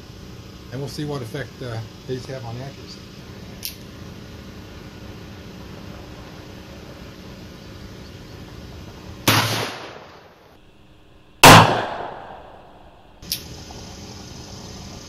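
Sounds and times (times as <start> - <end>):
revolver gunshots with echo: 9.2 - 10.4, 11.4 - 13.2
generator humming: 10.6 - 15.0.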